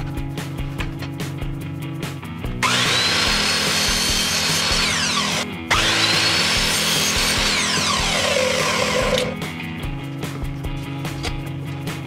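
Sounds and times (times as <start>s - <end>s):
mitre saw motor whining: 2.6s - 9.4s.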